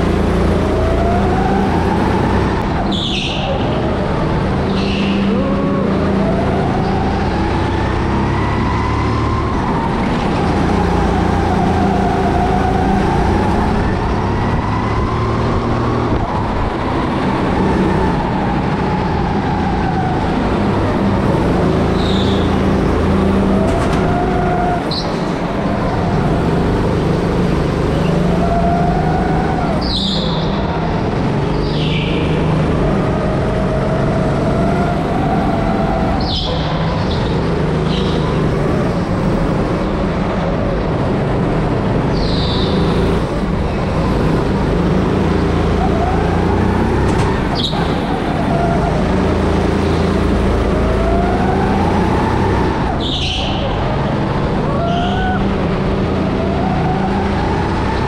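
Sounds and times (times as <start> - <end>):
go-kart motor rising and falling: 0.0 - 58.0
tyre squeals: 2.8 - 3.9, 21.7 - 25.3, 45.4 - 54.0, 54.7 - 55.6.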